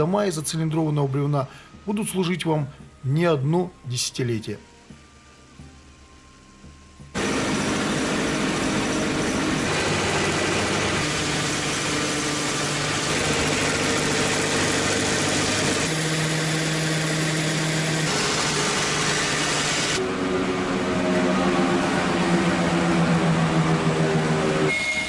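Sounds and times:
electric motors humming: 4.7s - 25.0s
cutter head shaving log: 7.2s - 20.0s.

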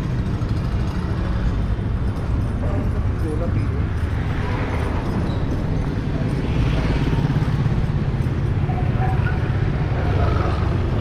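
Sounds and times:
low rumble of traffic: 0.0s - 11.0s
motorcycle passing: 4.0s - 11.0s.

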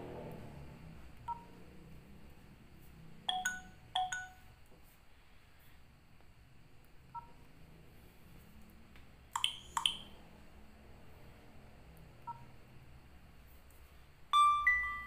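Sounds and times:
two-note ringing chime: 3.3s - 4.5s, 14.4s - 15.0s.

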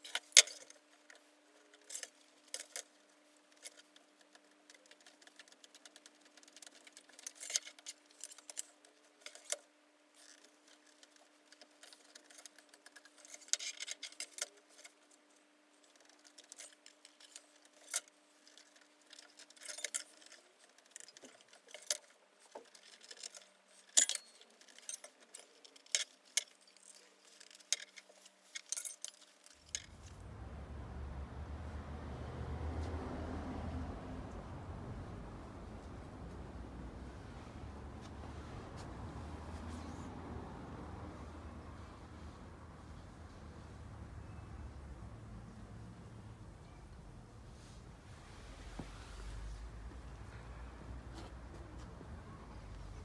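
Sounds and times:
paper crinkling and folding: 0.8s - 30.1s.

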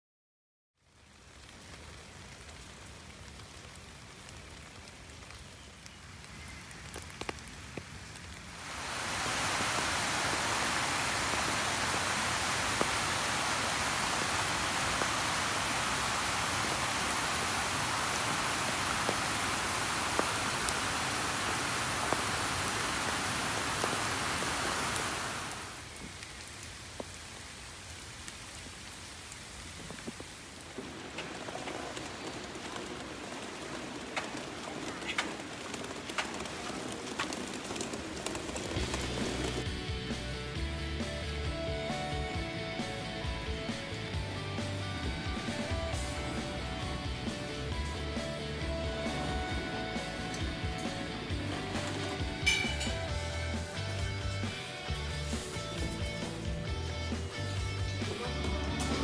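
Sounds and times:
rain on ground and foliage: 0.8s - 59.0s
water dripping: 1.0s - 39.7s, 45.0s - 54.0s
stream spilling over rocks: 6.8s - 40.6s.

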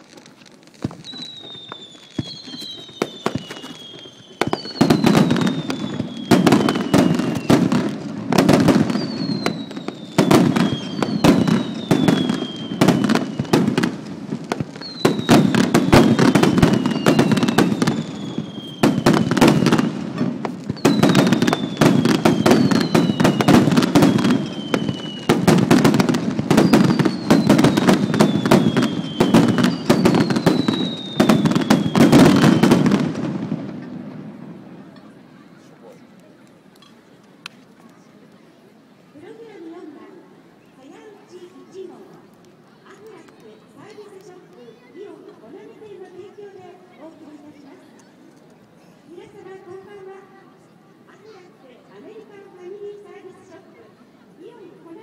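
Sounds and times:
fireworks bangs and crackling: 0.0s - 38.4s
firework whistle falling in pitch: 1.1s - 7.6s.

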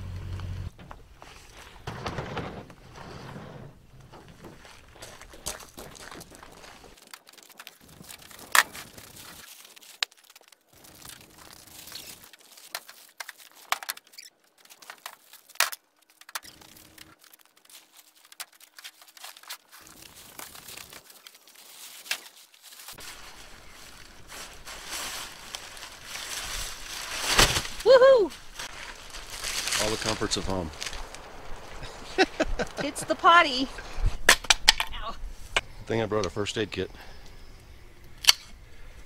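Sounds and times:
tent fabric rustling: 1.0s - 13.6s, 16.4s - 33.7s.

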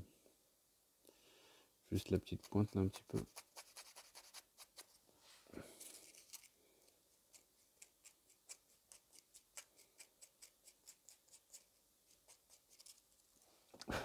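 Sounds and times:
sanding sponge scratching plastic: 2.2s - 4.9s.

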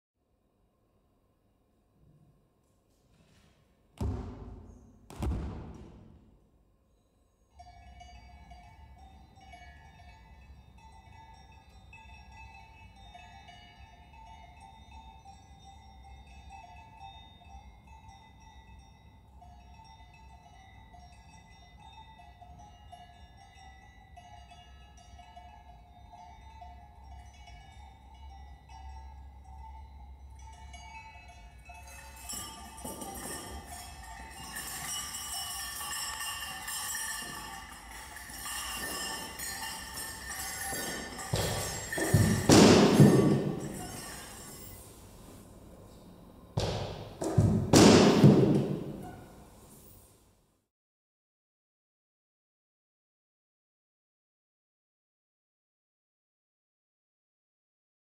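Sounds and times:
deep booming hits: 4.0s - 6.2s
metallic ringing drone: 6.9s - 49.9s.

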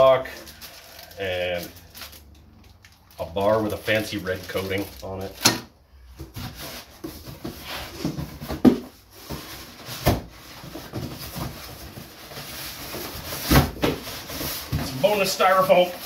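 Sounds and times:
cardboard and styrofoam scraping: 6.2s - 16.0s.

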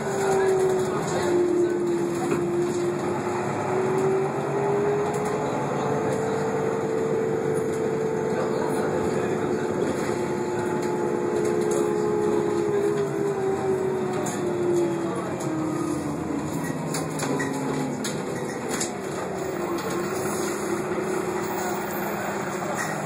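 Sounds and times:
bus drivetrain whine: 0.0s - 23.0s
engine and road noise: 0.0s - 23.0s.

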